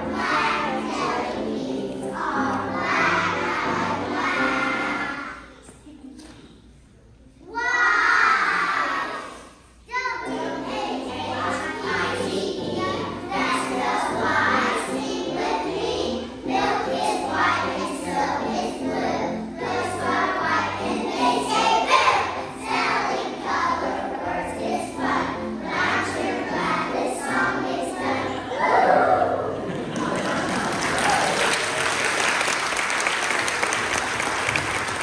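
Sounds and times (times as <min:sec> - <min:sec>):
musical accompaniment: 0:00.0 - 0:05.4, 0:10.2 - 0:29.7
children's choir singing: 0:00.0 - 0:05.5, 0:07.6 - 0:30.9.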